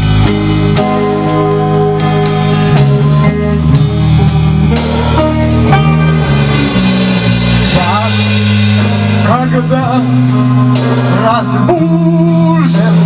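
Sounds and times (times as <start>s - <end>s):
rock band playing: 0.0s - 13.0s
man singing: 7.6s - 13.0s.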